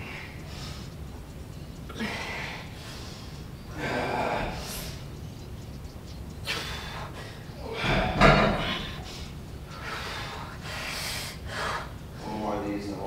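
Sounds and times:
woman breathing hard: 1.7 - 5.1, 6.4 - 12.2.

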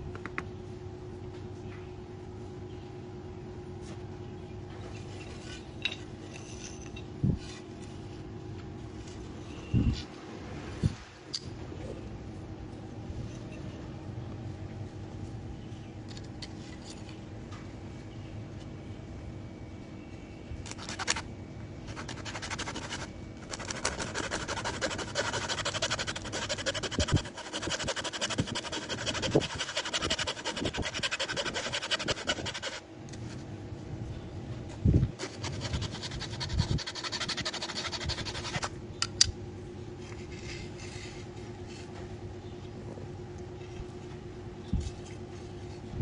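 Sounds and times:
hacksaw cutting bamboo: 21.9 - 32.8, 35.2 - 38.7.

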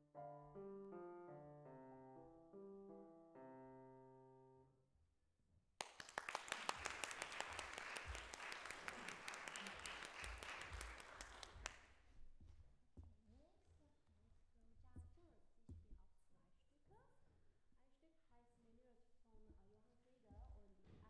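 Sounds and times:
audience applauding: 5.8 - 11.8.

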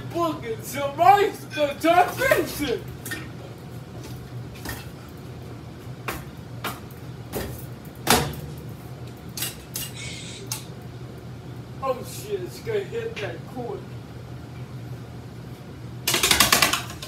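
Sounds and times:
ceiling fan motor hum: 0.0 - 17.0
fan blades striking hands: 6.0 - 10.8.

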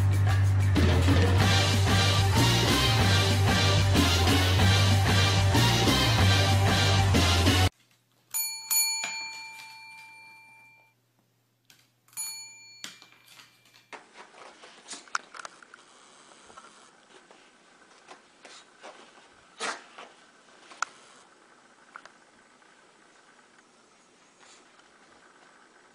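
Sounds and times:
rock music: 0.0 - 7.7
desk bell ringing: 8.3 - 11.0, 12.1 - 13.8.

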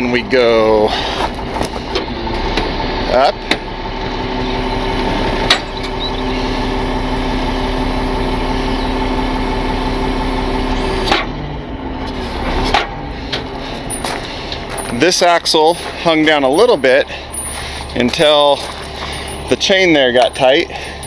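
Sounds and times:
hydraulic system whining: 0.8 - 21.0
wheel-lift clunk: 10.9 - 11.4, 12.0 - 21.0.

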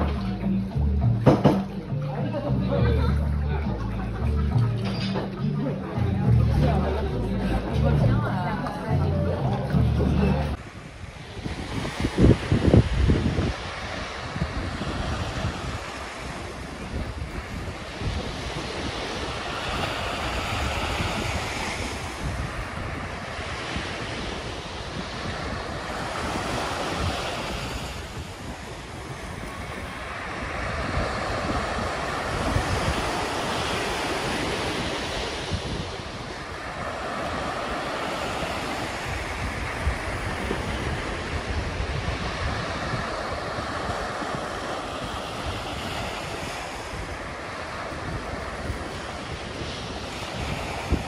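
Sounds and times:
wind rumbling on microphone: 0.0 - 51.0
small waves breaking on beach: 10.5 - 51.0.

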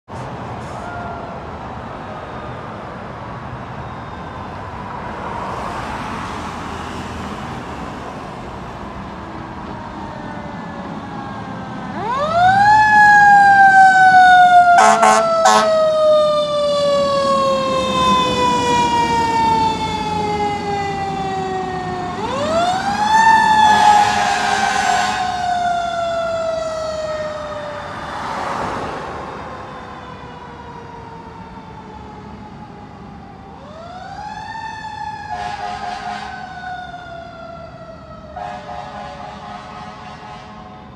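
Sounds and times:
fire engine siren wailing: 0.2 - 40.9
short horn blasts: 14.8 - 15.7, 23.8 - 25.3, 38.4 - 40.6.

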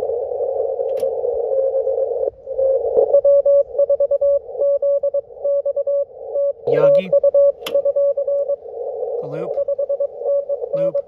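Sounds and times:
radio receiver hiss: 0.0 - 11.0
morse code tone: 2.6 - 11.0.

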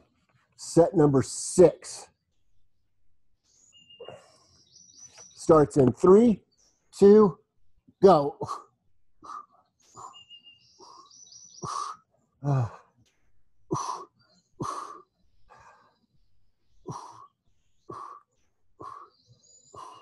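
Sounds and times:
birds chirping and whistling: 3.4 - 7.3, 9.2 - 20.0
person grunting: 12.4 - 12.8
person breathing sharply: 17.9 - 20.0.

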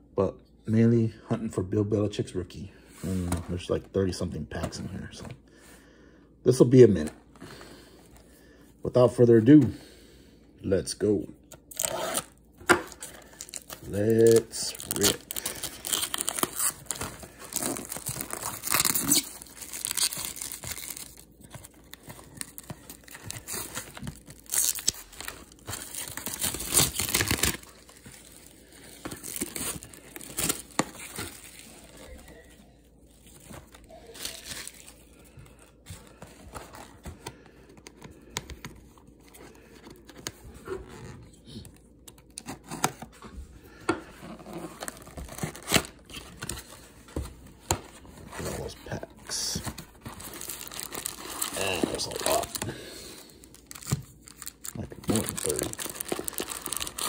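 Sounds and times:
plastic wrap ripping and crackling: 11.7 - 12.3, 12.9 - 35.2, 44.8 - 46.7, 48.6 - 57.0
cardboard box rustling: 35.9 - 37.3.

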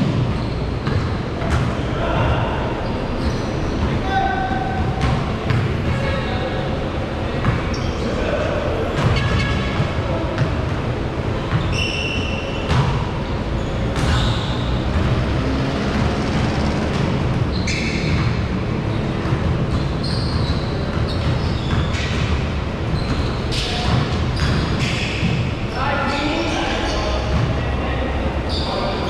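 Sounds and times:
basketballs bouncing on hardwood: 0.0 - 2.4, 4.8 - 6.0, 9.0 - 10.8, 12.6 - 13.1, 13.8 - 25.6, 27.3 - 27.6
sneaker squeaks: 0.0 - 29.0.

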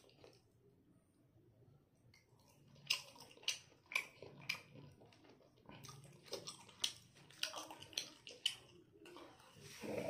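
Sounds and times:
person chewing and lip-smacking: 2.2 - 9.4.

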